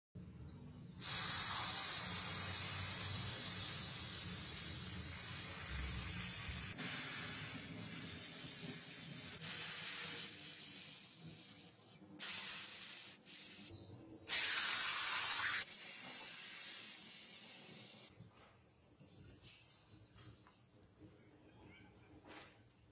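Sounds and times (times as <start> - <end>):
high-pressure water jet hissing: 1.0 - 13.7, 14.3 - 18.1.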